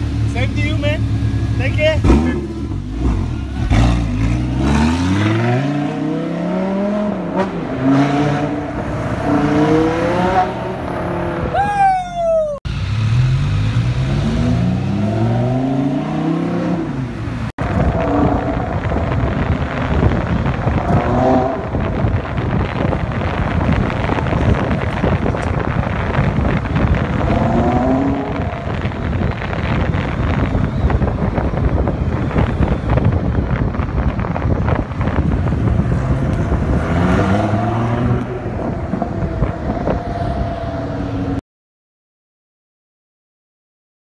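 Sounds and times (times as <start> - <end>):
road and wind noise: 0.0 - 41.4
car engine accelerating: 33.6 - 41.4.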